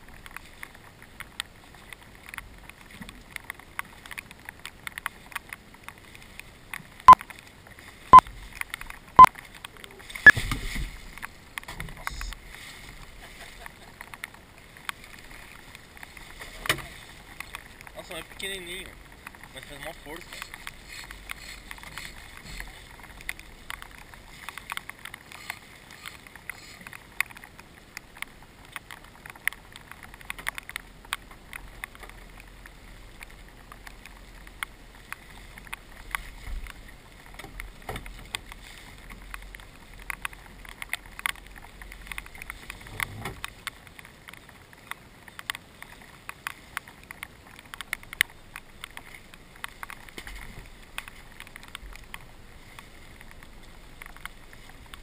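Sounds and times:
sharp ticks and taps: 13.6s - 55.0s.

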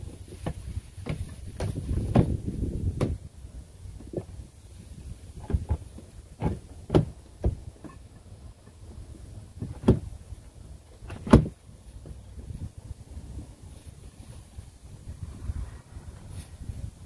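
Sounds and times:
hollow plastic knocks: 0.3s - 3.2s, 5.4s - 8.8s, 9.6s - 10.2s.

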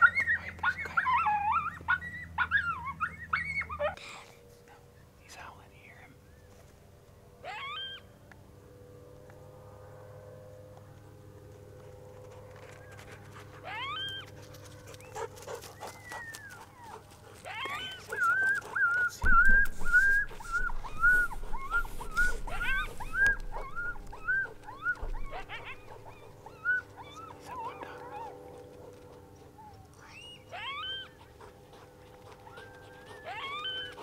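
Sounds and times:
dog whining: 0.0s - 4.0s, 7.4s - 8.1s, 13.5s - 14.4s, 15.1s - 28.5s, 29.4s - 34.0s
dog yelping: 0.0s - 4.0s, 7.4s - 8.1s, 13.5s - 14.4s, 15.1s - 28.6s, 29.6s - 34.0s.

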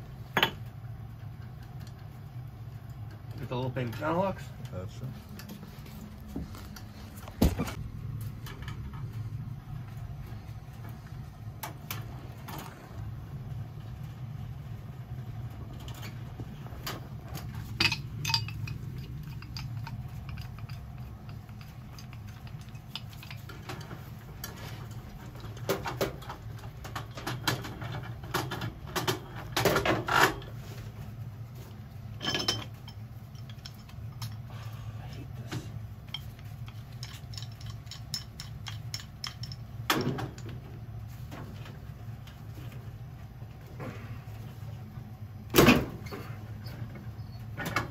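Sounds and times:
steady low hum: 0.0s - 47.9s
metallic clinks and rattles of tools: 16.8s - 30.5s, 32.1s - 35.2s, 36.0s - 40.5s.

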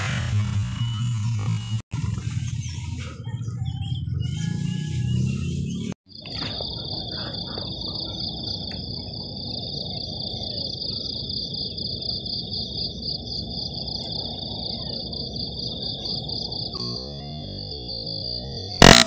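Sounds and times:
high-pitched insect drone: 16.7s - 19.0s.

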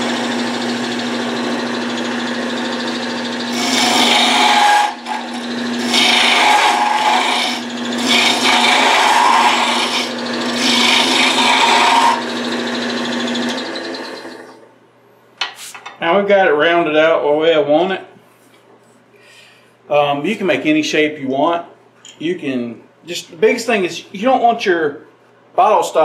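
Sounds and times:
gouge cutting spinning wood: 0.0s - 14.6s
wood lathe humming: 0.0s - 14.7s.

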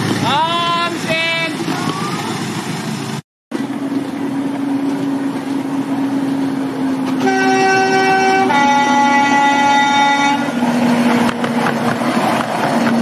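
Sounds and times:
locomotive low hum: 0.0s - 13.0s
wheels rumbling on track: 0.0s - 13.0s
train horn note: 7.0s - 10.8s.

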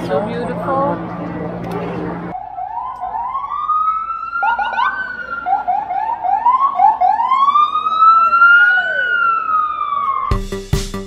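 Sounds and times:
ambulance siren wailing and yelping: 2.3s - 10.4s.

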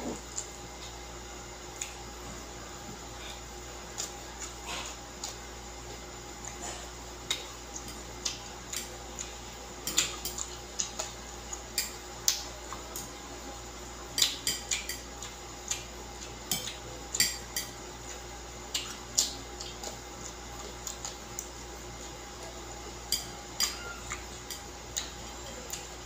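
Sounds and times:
chopsticks clicking on a plate: 7.3s - 11.2s, 11.8s - 13.1s, 14.2s - 17.8s, 22.4s - 25.9s.

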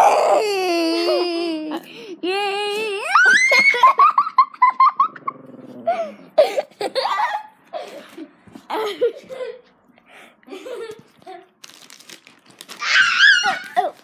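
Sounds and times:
child crying out: 0.0s - 3.9s, 12.8s - 14.0s
child laughing: 0.3s - 5.3s, 5.9s - 9.7s, 13.1s - 14.0s.

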